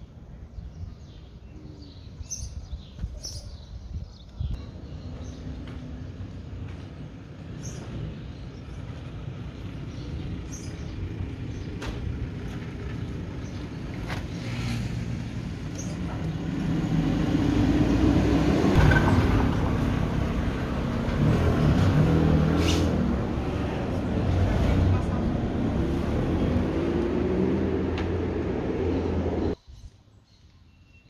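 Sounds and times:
street traffic: 0:00.0 - 0:29.6.

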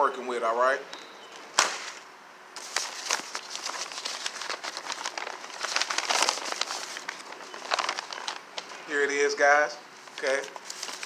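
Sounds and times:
paper bag rustling and crinkling: 0:02.6 - 0:09.4, 0:10.0 - 0:11.0.

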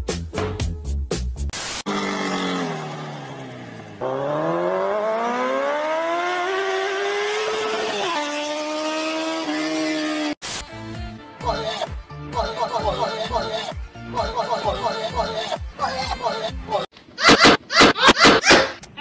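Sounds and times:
vehicle engine revving: 0:01.9 - 0:10.4.

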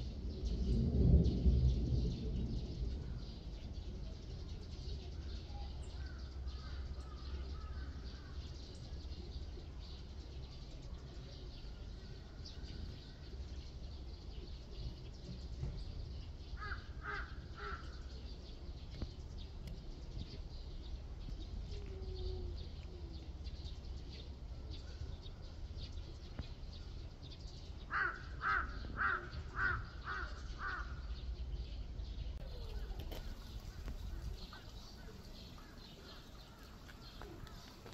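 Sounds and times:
steady low rumble: 0:00.0 - 0:37.9
bird harsh calls: 0:16.4 - 0:18.3, 0:27.9 - 0:31.6, 0:32.4 - 0:37.9.

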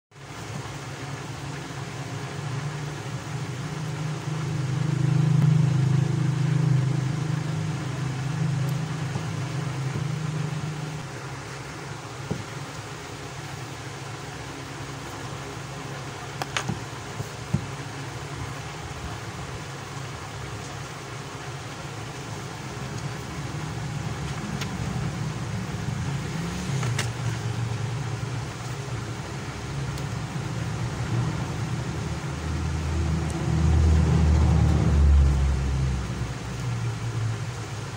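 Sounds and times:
low droning hum: 0:00.4 - 0:37.9.

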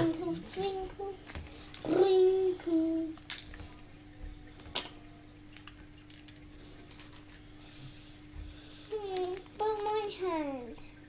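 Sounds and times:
plastic pieces clicking: 0:08.8 - 0:10.1.

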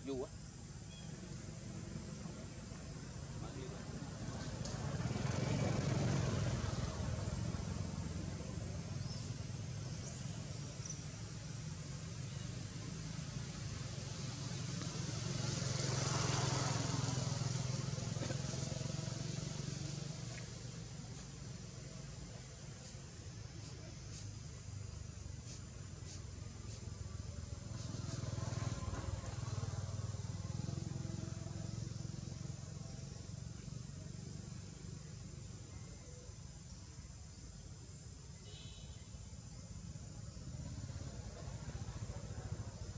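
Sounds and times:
low outdoor rumble: 0:00.0 - 0:38.3, 0:39.3 - 0:42.9
distant engine hum: 0:00.0 - 0:42.9
high insect buzz: 0:38.3 - 0:39.5.

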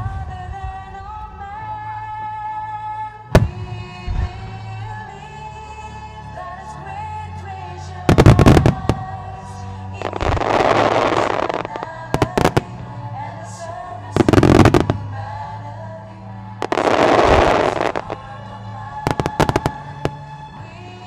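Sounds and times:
music playing: 0:00.0 - 0:21.0
rushes of dense firework noise: 0:16.6 - 0:18.2, 0:19.1 - 0:20.0.

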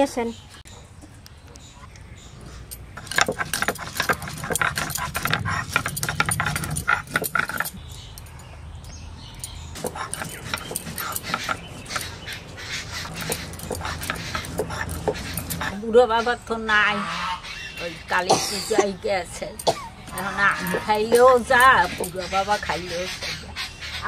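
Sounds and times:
stone roller grinding on stone slab: 0:03.0 - 0:07.8, 0:09.8 - 0:15.8.

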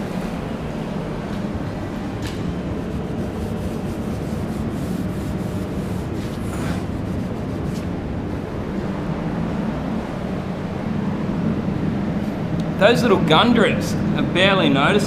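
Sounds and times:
low background hum: 0:00.0 - 0:15.0
rag rubbing painted panel: 0:02.8 - 0:08.0.

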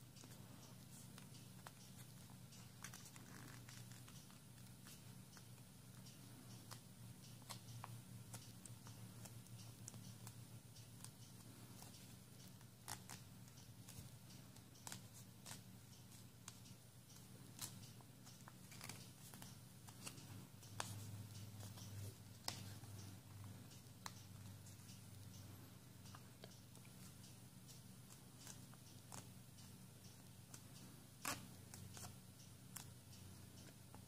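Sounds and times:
low steady hum: 0:00.0 - 0:34.0
paper crinkling and clicking: 0:00.2 - 0:05.1.

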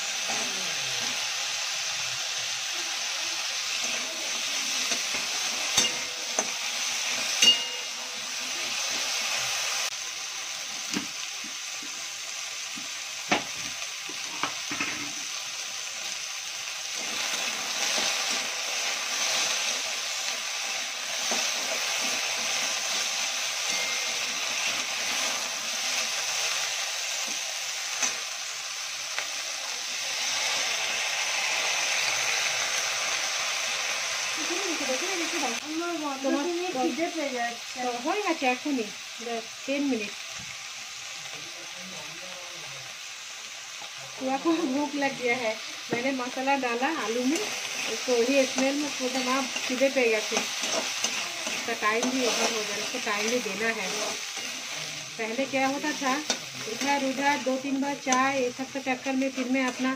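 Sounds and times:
food sizzling in oil: 0:00.0 - 0:59.9
spatula clinking against pan: 0:05.7 - 0:06.6, 0:07.4 - 0:08.0.

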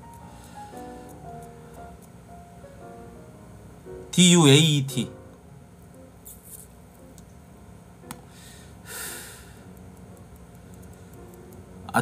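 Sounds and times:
soft breath or sniff: 0:08.3 - 0:09.7.

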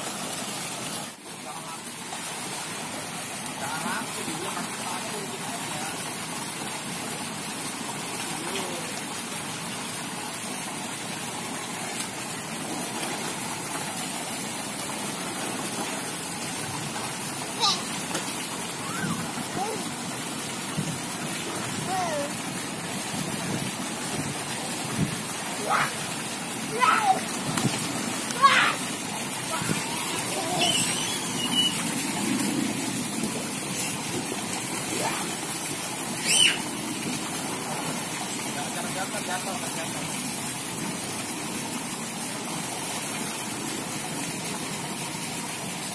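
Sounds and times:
water spouts pouring into pool: 0:00.0 - 0:45.9
child's high-pitched squeal: 0:18.8 - 0:19.8, 0:26.7 - 0:27.2, 0:29.5 - 0:31.8, 0:36.2 - 0:36.6
children splashing: 0:25.4 - 0:34.0, 0:36.1 - 0:36.8.

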